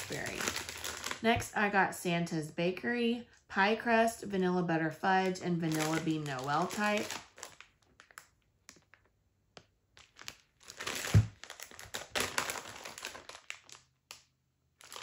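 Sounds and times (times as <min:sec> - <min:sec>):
plastic bag crinkling: 0:00.0 - 0:01.3, 0:05.6 - 0:09.1, 0:09.9 - 0:15.0.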